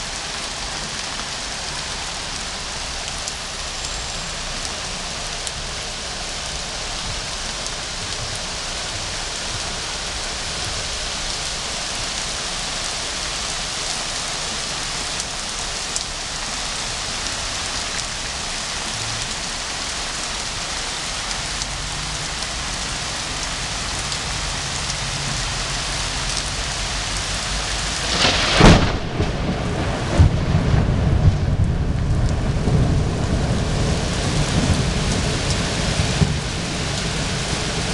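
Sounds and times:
rain on trees: 0:00.0 - 0:37.9
low thunder rumble: 0:27.7 - 0:37.9
thunderclap: 0:27.7 - 0:37.9.

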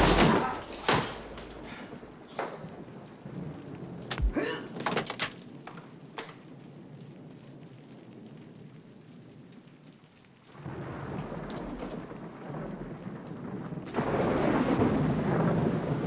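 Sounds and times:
thunder-like rumbling: 0:00.0 - 0:09.7, 0:10.5 - 0:16.0.

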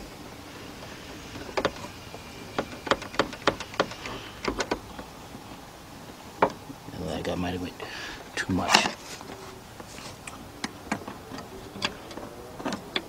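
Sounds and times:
light clicks and knocks: 0:01.3 - 0:06.8.

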